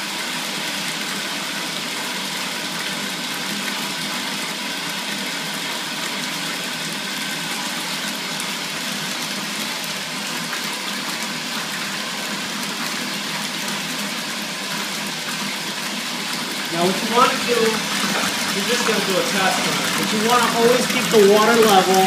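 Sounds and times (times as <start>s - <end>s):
water pouring into plastic tote: 0.2s - 22.0s
water splashing: 16.4s - 22.0s.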